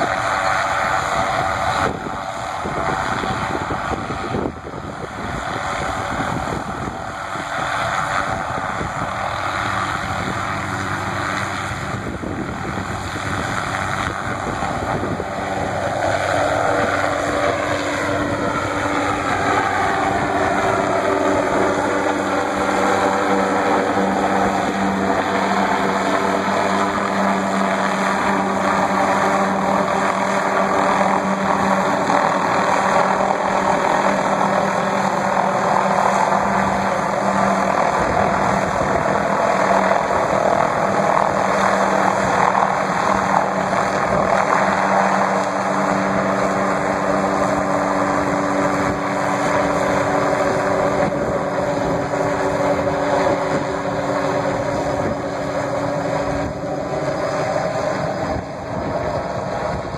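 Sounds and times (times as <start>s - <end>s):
helicopter rotor and engine hum: 0.0s - 59.9s.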